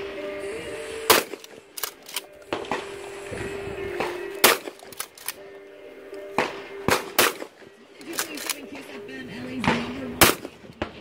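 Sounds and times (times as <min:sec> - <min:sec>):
shotgun firing: 0:01.0 - 0:02.9, 0:04.0 - 0:05.2, 0:06.4 - 0:08.6, 0:09.6 - 0:11.0
fainter gunshots: 0:01.1 - 0:01.5, 0:04.0 - 0:05.0, 0:06.4 - 0:07.5, 0:09.6 - 0:10.9.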